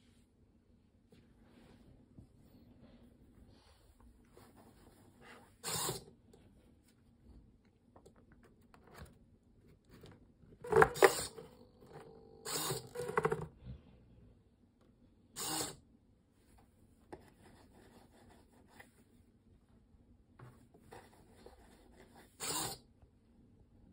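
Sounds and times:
servo motors whirring: 0:05.6 - 0:06.1, 0:10.6 - 0:13.4, 0:15.4 - 0:15.8, 0:22.4 - 0:22.8.

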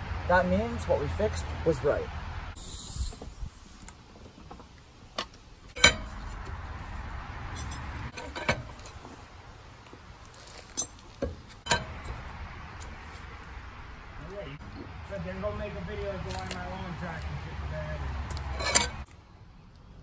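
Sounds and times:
pry bar clinking against metal wheel: 0:05.7 - 0:06.4, 0:07.7 - 0:09.0, 0:10.7 - 0:12.2, 0:18.3 - 0:19.0.

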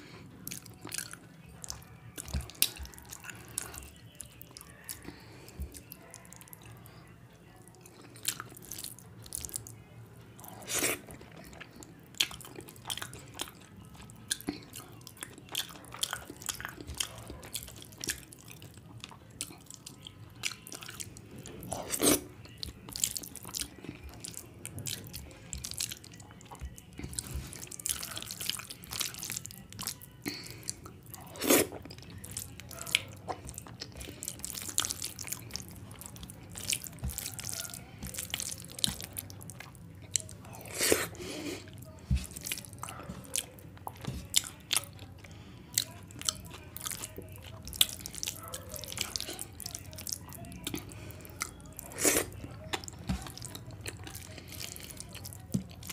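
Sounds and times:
wet chewing and lip smacks: 0:00.5 - 0:06.7, 0:10.4 - 0:55.9
fingers mixing rice on a plate: 0:31.4 - 0:55.9.

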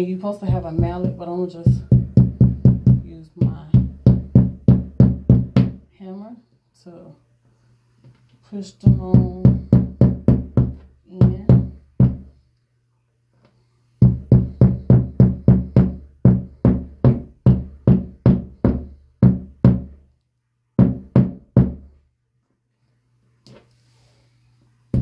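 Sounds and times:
hammer tapping wall anchor: 0:08.9 - 0:12.3, 0:14.0 - 0:19.9.

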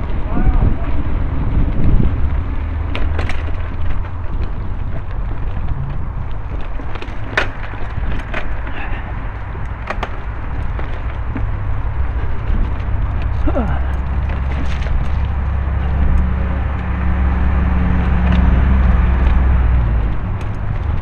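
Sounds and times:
bike tyres rolling over leaves: 0:00.0 - 0:21.0
low rumble: 0:00.0 - 0:21.0
twigs snapping: 0:05.6 - 0:21.0.

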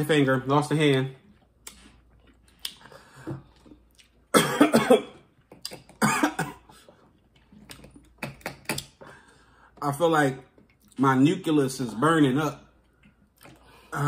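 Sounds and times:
person coughing: 0:04.3 - 0:05.2, 0:06.0 - 0:06.8.

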